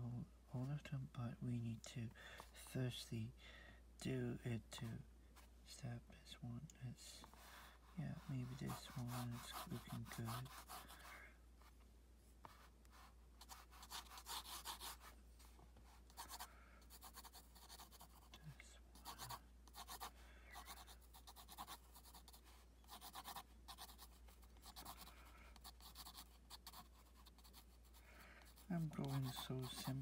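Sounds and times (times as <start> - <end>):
pencil scratching on paper: 7.3 - 11.1, 12.4 - 15.1, 15.8 - 18.3, 19.0 - 30.0.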